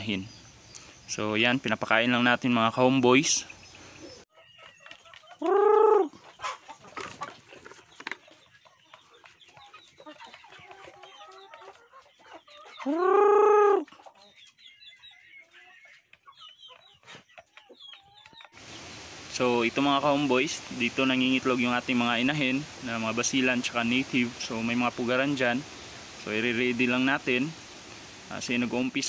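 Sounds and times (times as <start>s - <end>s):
chickens clucking: 0.0s - 29.0s
chicken drawn-out call: 3.8s - 8.0s, 9.6s - 17.5s.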